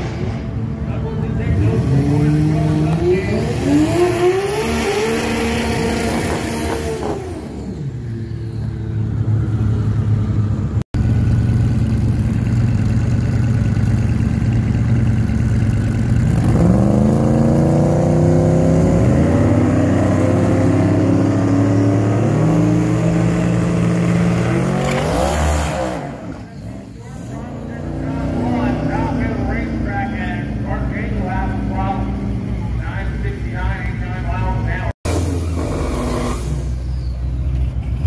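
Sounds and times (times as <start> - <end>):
drag car engine idling and revving: 0.0 - 38.0.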